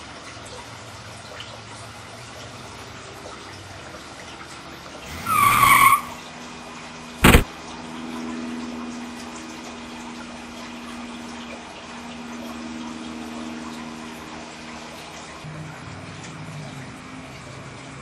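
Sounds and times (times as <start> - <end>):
brief pitch-bending squeal: 5.1 - 6.2, 7.2 - 7.4
sharp thump: 7.2 - 7.5.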